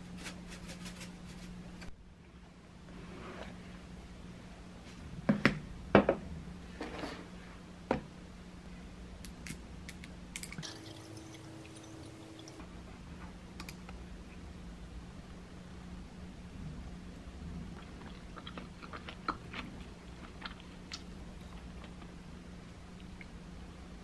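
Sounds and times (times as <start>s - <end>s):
water pouring into glass: 10.6s - 12.6s.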